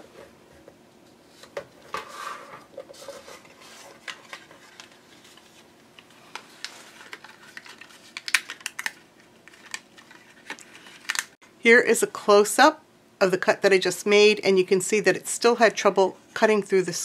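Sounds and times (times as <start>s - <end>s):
cardstock rustling: 1.4s - 11.4s.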